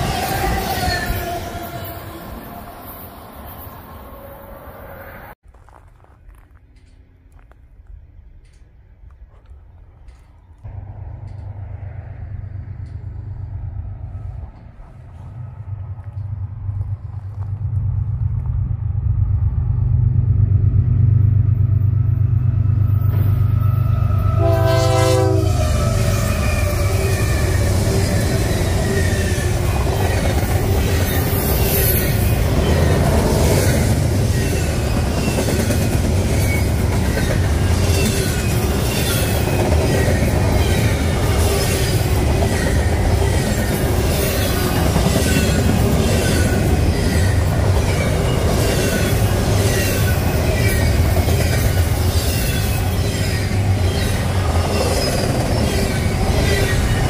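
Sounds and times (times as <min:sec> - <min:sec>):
diesel locomotives rumbling: 0:00.0 - 0:57.0
rail noise: 0:00.0 - 0:57.0
train horn blast: 0:23.5 - 0:27.2.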